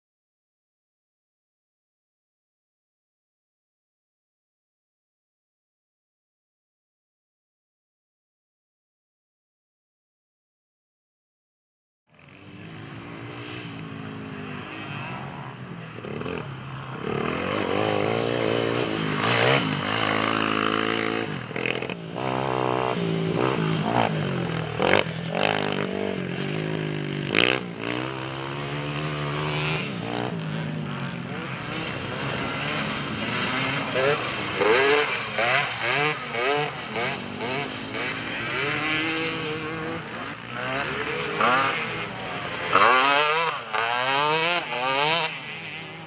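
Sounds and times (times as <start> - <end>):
quad bike engine revving: 12.2 - 46.0.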